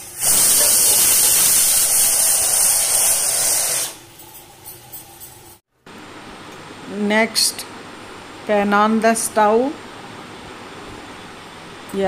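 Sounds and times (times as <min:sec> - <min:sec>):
pressure cooker whistle hissing: 0:00.0 - 0:04.0.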